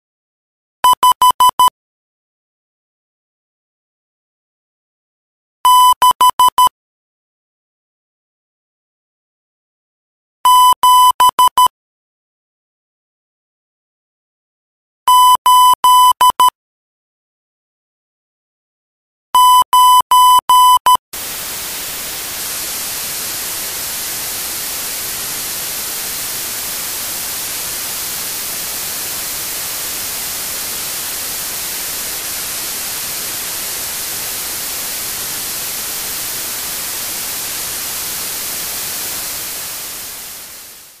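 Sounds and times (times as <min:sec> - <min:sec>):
morse code beeps: 0:00.8 - 0:01.7, 0:05.7 - 0:06.7, 0:10.5 - 0:11.7, 0:15.1 - 0:16.5, 0:19.4 - 0:21.0
radio static hiss: 0:21.2 - 0:41.0.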